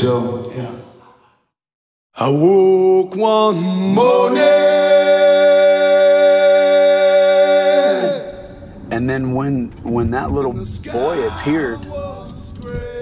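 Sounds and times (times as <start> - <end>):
man singing unaccompanied: 2.2 - 8.4, 10.8 - 13.0.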